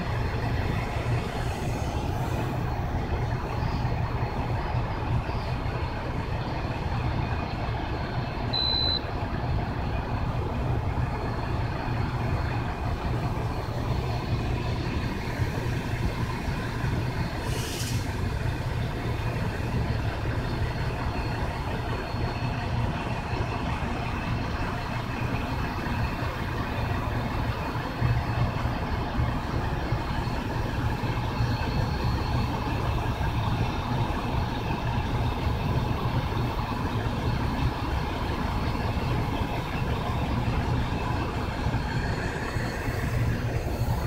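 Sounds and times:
high propeller whine: 0.0s - 22.0s, 29.4s - 44.0s
short hiss: 17.4s - 18.1s.

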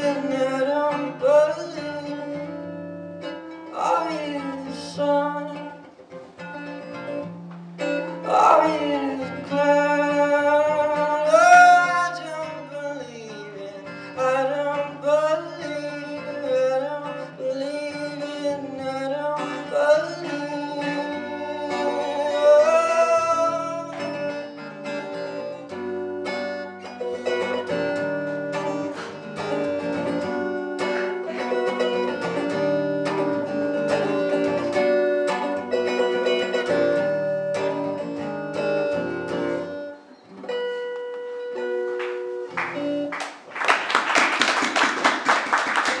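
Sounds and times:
man singing: 0.0s - 2.8s, 3.7s - 5.9s, 8.2s - 25.6s, 30.8s - 34.9s
acoustic guitar strumming: 0.0s - 46.0s
applause: 42.0s - 46.0s.

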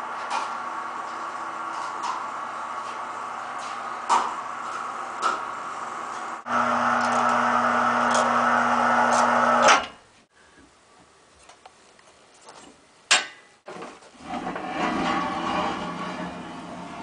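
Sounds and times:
electric hoist motor humming: 0.0s - 10.0s.

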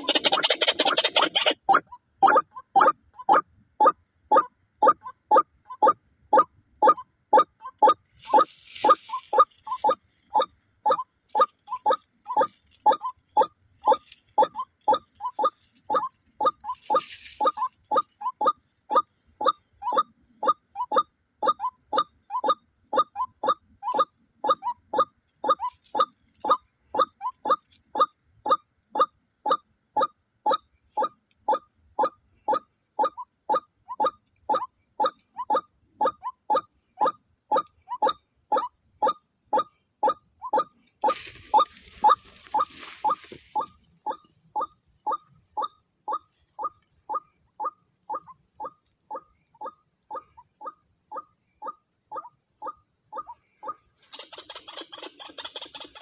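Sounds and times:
waterhen harsh call: 0.0s - 2.9s
waterhen hoarse calls: 0.0s - 29.6s, 40.0s - 47.7s.

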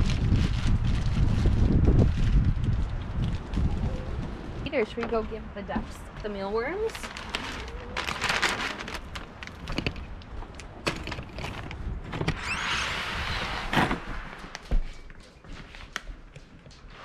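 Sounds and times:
footsteps on wooden deck: 4.2s - 6.9s, 13.7s - 17.0s.

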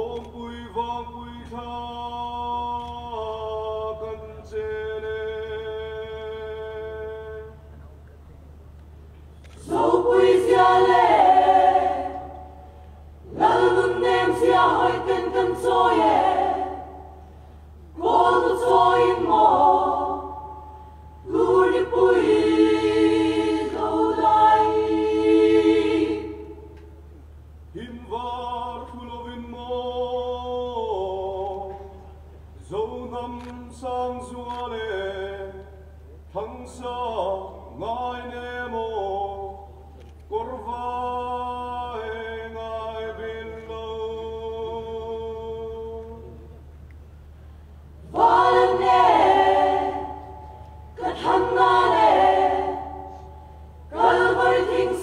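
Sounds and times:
choir singing a cappella: 9.6s - 27.0s, 40.4s - 46.4s, 48.0s - 55.0s.

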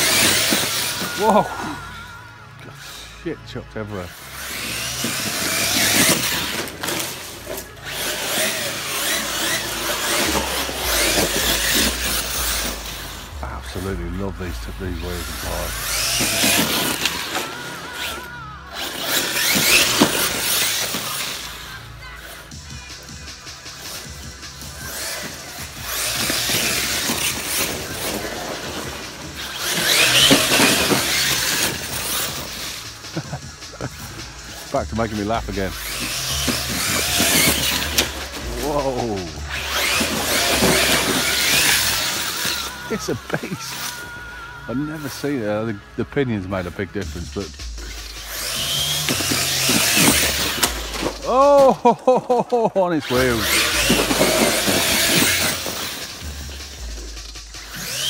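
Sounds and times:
electric motor whining: 0.0s - 58.0s
tyre noise on dirt: 24.7s - 43.8s, 47.4s - 52.2s, 53.0s - 58.0s.

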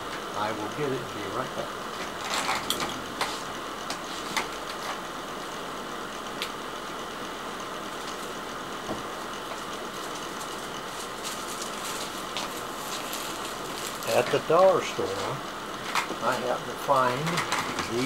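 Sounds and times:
room hum and hiss: 0.0s - 18.0s.

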